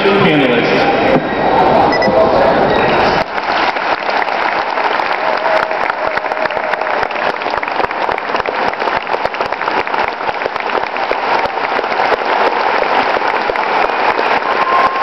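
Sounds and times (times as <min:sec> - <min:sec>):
audience applauding: 0:03.2 - 0:15.0.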